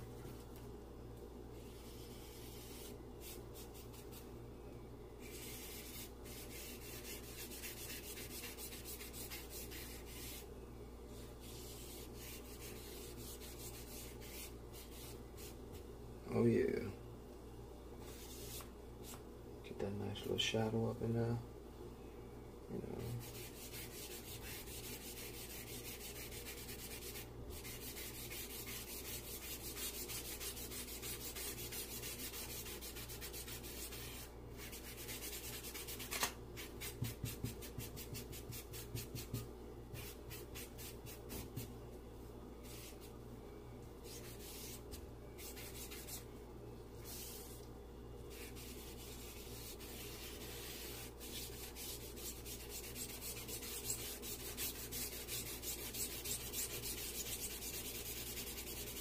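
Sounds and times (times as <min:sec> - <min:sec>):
charcoal rubbing on paper: 0:01.6 - 0:04.2, 0:05.2 - 0:10.5, 0:11.4 - 0:15.6, 0:23.0 - 0:41.7, 0:42.6 - 0:43.1, 0:44.0 - 0:46.2, 0:47.0 - 0:47.6, 0:48.3 - 0:59.0.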